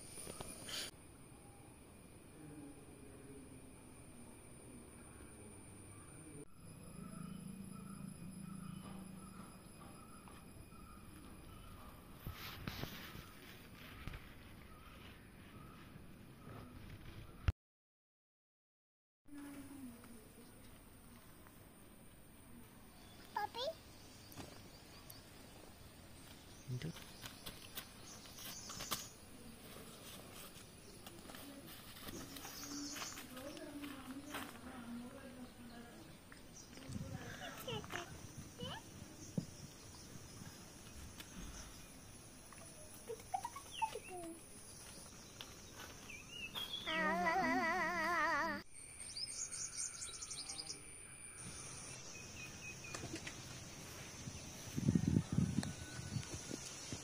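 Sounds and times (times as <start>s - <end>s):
high insect whine: 0.0s - 13.4s, 44.5s - 57.0s
bird chirping: 5.0s - 17.5s, 32.0s - 47.3s, 48.7s - 57.0s.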